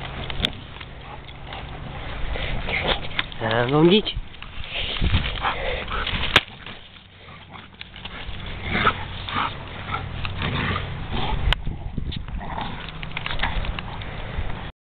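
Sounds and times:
branch scraping over grass: 0:00.0 - 0:11.5
dog huffing and sniffing: 0:04.6 - 0:11.5.

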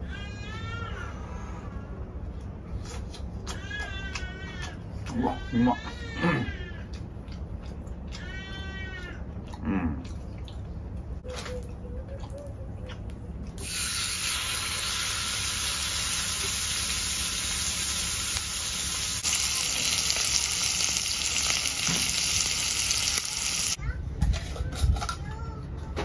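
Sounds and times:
pork sizzling in a frying pan: 0:13.6 - 0:23.8.

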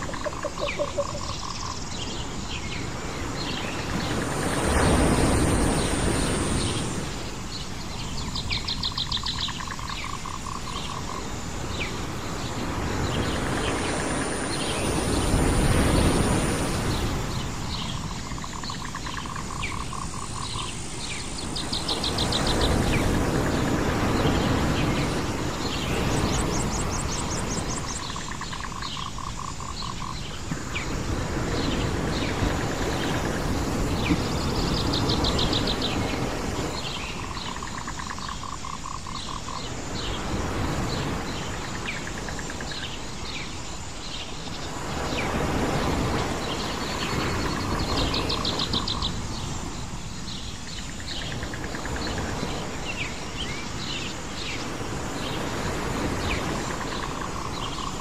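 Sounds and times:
pulsing bird trill: 0:00.0 - 0:01.7
birds chirping: 0:00.0 - 0:58.0
rushing background noise: 0:00.0 - 0:58.0.

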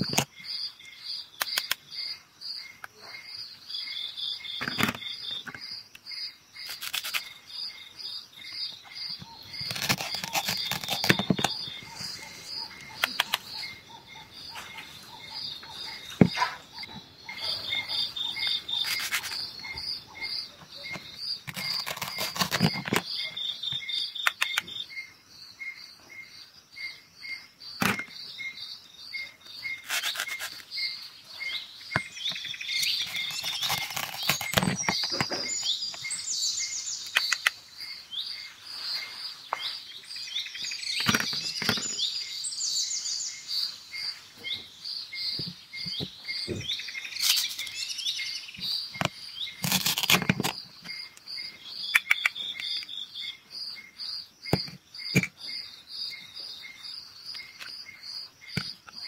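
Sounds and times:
bird calls: 0:00.0 - 0:59.0
insect chirping: 0:00.0 - 0:59.0
plastic toy pieces clicking: 0:06.6 - 0:07.3
velcro rasps: 0:06.6 - 0:07.3, 0:09.5 - 0:13.5, 0:17.4 - 0:19.8, 0:21.5 - 0:23.1, 0:29.7 - 0:30.7, 0:32.7 - 0:35.6, 0:49.6 - 0:50.6.

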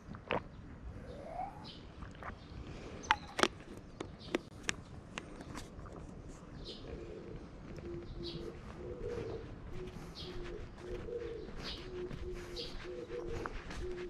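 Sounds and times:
dove cooing: 0:06.6 - 0:14.0.

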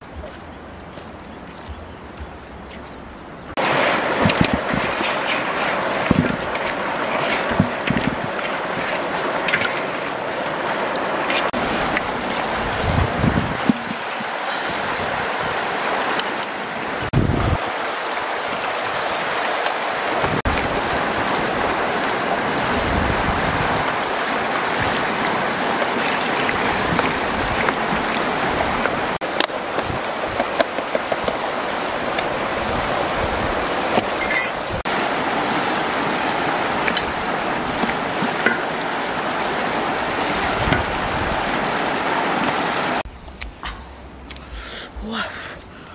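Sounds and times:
river water running over rocks: 0:03.5 - 0:45.9.

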